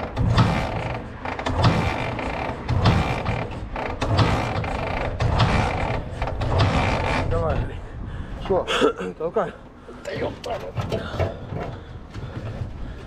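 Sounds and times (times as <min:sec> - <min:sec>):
motorcycle kick-starter ratchet clatter: 0:00.0 - 0:07.4.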